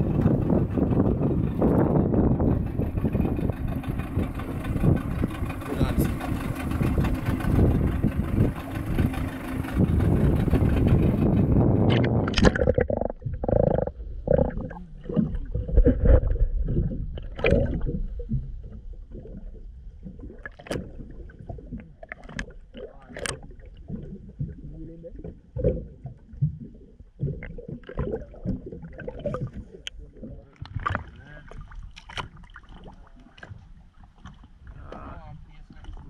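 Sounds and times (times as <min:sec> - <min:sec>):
underwater gurgles: 0:00.0 - 0:36.0
wind and sea noise: 0:00.0 - 0:36.0
sharp underwater knocks: 0:10.2 - 0:18.5.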